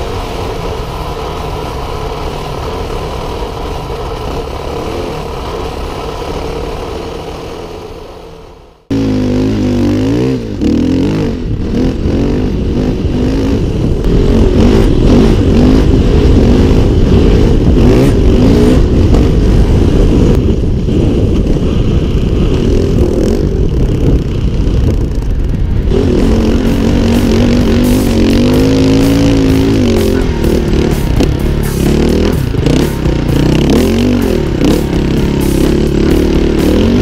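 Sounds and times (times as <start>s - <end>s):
dirtbike engine revving under load: 8.9s - 37.0s.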